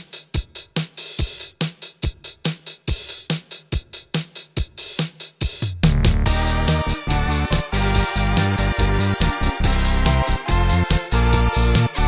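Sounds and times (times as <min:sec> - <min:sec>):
electronic music with drum-machine beat: 0:00.0 - 0:12.0.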